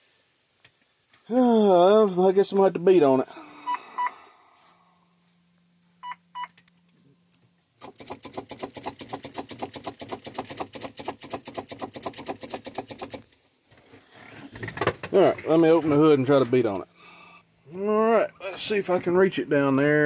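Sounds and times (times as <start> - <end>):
short electronic beeps: 6.0 - 6.6
starter solenoid clicking: 7.8 - 13.3.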